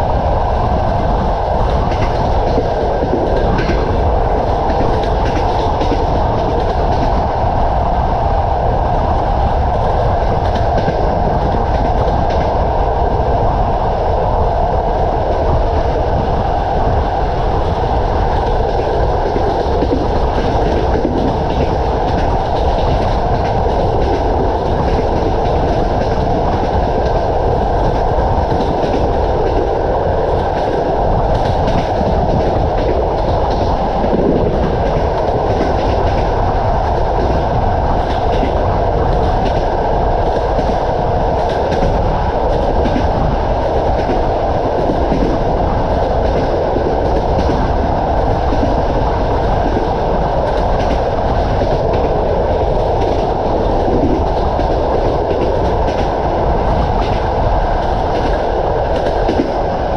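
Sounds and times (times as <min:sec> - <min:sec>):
train wheels rumbling on rails: 0:00.0 - 0:59.9
wheels clicking over rail joints: 0:00.7 - 0:07.4.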